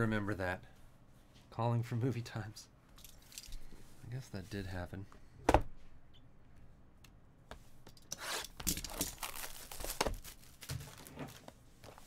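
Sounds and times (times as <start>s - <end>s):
plastic shrink wrap tearing: 8.7s - 11.5s.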